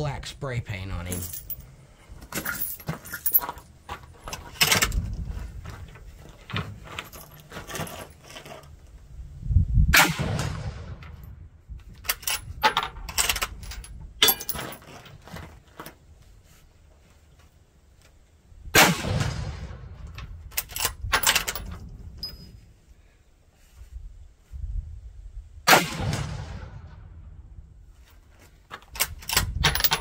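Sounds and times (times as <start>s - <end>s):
metallic clicks and clangs: 1.1s - 8.8s, 11.8s - 16.0s, 20.1s - 22.6s, 28.7s - 30.0s.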